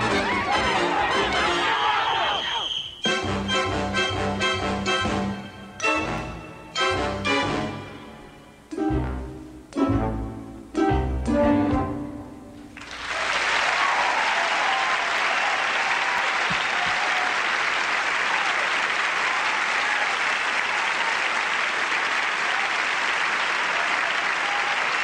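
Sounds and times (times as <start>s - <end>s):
audience cheering: 0.0s - 3.1s, 12.8s - 25.0s
audience applauding: 12.8s - 25.0s.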